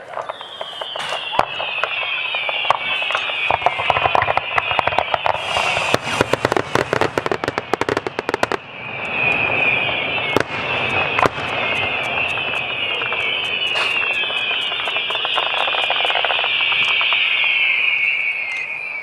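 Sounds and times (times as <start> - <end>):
rapid crackling pops: 0.0 - 18.3
firework bangs: 0.0 - 19.0
high-pitched hiss: 2.5 - 7.8.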